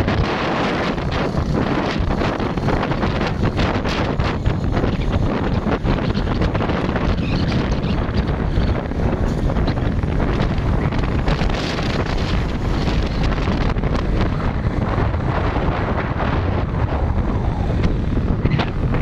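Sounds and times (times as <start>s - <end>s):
wind blasting microphone: 0.0s - 19.0s.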